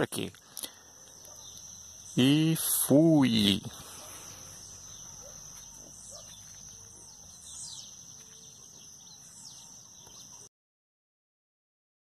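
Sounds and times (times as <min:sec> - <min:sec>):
high insect trill: 0:00.0 - 0:10.3
birds chirping and whistling: 0:00.5 - 0:02.8, 0:03.4 - 0:10.5.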